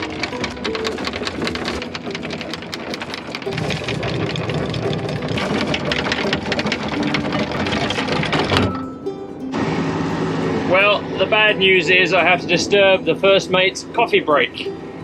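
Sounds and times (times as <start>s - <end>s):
anchor chain rattling: 0.0s - 8.9s
windlass motor running: 0.0s - 15.0s.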